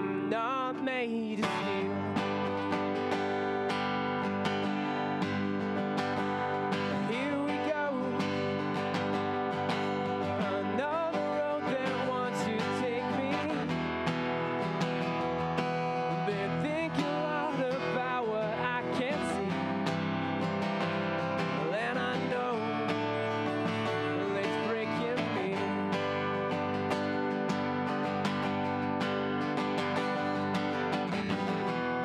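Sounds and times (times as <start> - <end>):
man singing: 0.0 - 2.9, 6.6 - 15.0, 15.8 - 27.0
acoustic guitar strumming: 0.0 - 32.0.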